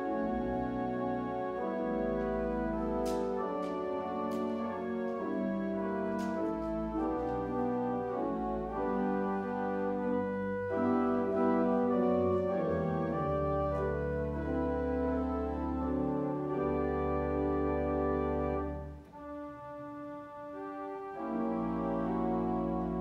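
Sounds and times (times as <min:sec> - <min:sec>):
organ playing sustained chords: 0:00.0 - 0:23.0.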